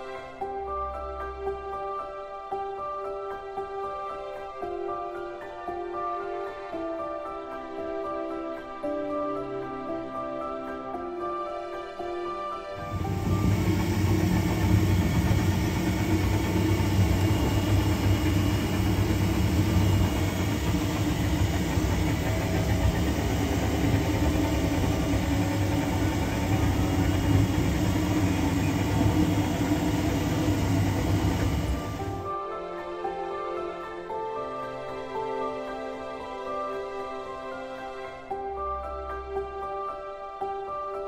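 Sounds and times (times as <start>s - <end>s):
tractor engine humming: 12.8s - 32.3s.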